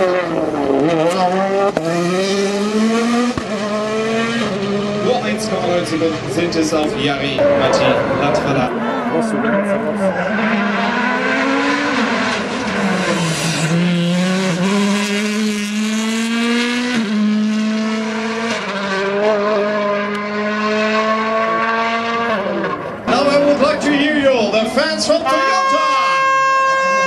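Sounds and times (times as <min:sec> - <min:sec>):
rally car engine at full throttle: 0:00.0 - 0:27.0.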